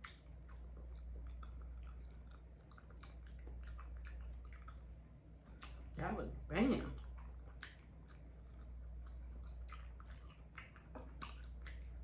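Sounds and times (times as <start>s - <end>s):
mouth clicks and smacks: 0.0s - 6.0s, 7.0s - 12.0s
person chewing: 0.0s - 6.0s, 6.9s - 12.0s.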